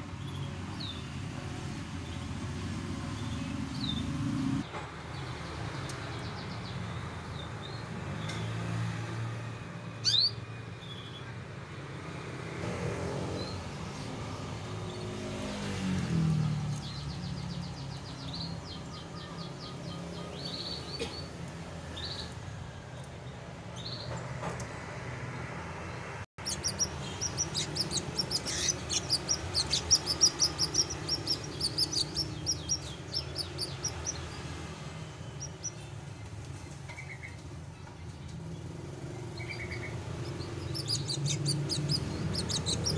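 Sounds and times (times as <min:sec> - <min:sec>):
canaries chirping: 0:00.0 - 0:01.2, 0:01.9 - 0:04.3, 0:10.0 - 0:11.3, 0:14.4 - 0:22.4, 0:26.4 - 0:42.9
canary trilling song: 0:10.0 - 0:11.3, 0:16.8 - 0:21.3, 0:26.4 - 0:37.5, 0:38.5 - 0:42.9.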